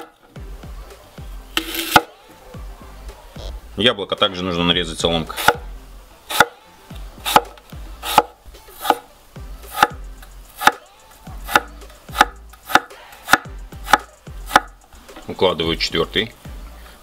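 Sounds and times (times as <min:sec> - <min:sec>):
knife slicing apple: 0:01.6 - 0:02.2, 0:05.3 - 0:05.7, 0:06.3 - 0:06.6, 0:07.2 - 0:09.1, 0:09.7 - 0:14.7.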